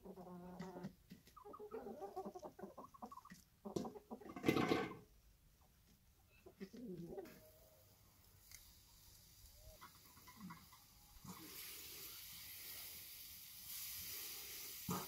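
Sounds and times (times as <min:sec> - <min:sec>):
chickens clucking: 0:00.0 - 0:05.0, 0:06.3 - 0:07.8, 0:09.4 - 0:12.1.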